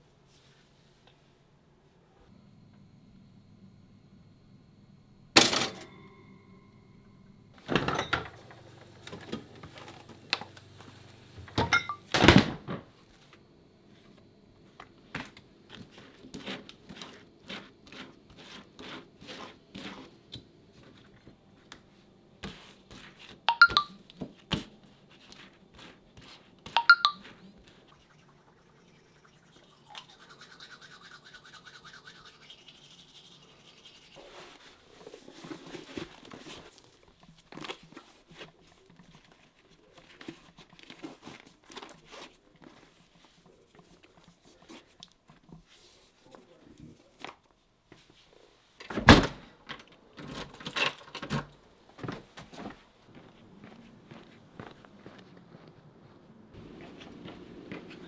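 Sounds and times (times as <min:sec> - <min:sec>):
knife scraping margarine on bread: 0:16.0 - 0:20.2
toothbrush scrubbing teeth: 0:25.4 - 0:34.6.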